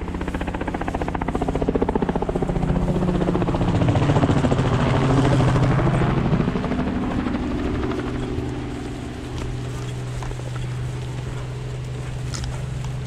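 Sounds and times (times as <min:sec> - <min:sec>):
pulsing engine drone: 0:00.0 - 0:13.0.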